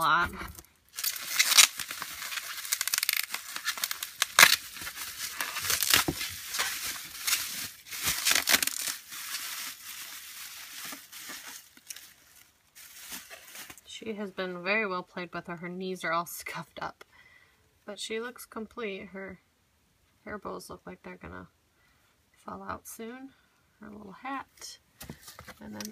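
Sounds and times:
bubble wrap crinkling: 0.0 - 13.9.

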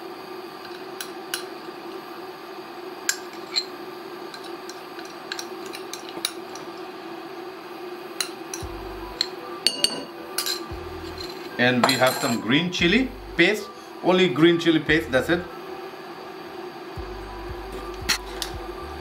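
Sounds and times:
steady hum: 0.0 - 19.0
spoon clinking and scraping bowl: 3.1 - 3.7, 9.7 - 12.4.

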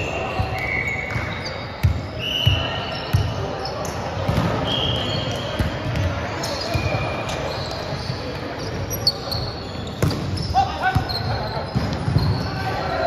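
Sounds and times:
sneakers squeaking on court floor: 0.0 - 13.0.

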